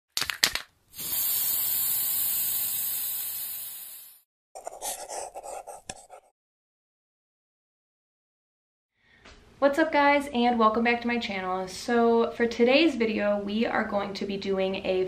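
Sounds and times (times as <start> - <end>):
long hiss: 1.0 - 4.2.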